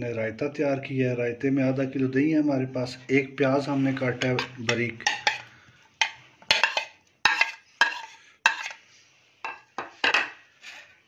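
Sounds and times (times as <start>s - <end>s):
spoon scraping and clinking plate: 4.0s - 8.9s.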